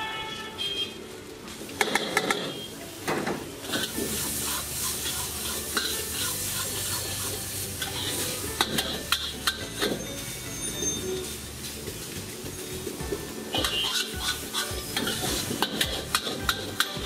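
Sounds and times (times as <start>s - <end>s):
food sizzling: 0.0s - 17.0s
metal utensils clanking on a wok: 3.6s - 12.8s, 13.5s - 17.0s.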